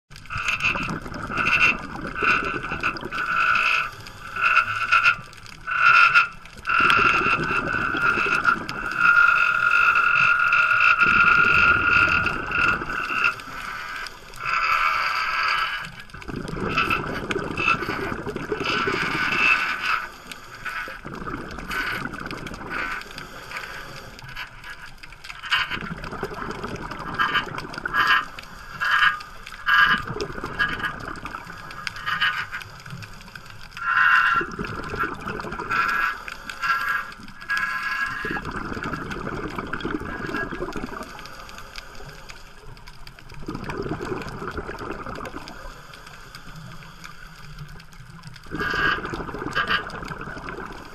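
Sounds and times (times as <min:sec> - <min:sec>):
exhaled bubbles bubbling: 0:00.1 - 0:50.9
regulator hissing inhale: 0:22.8 - 0:24.3, 0:45.4 - 0:47.8.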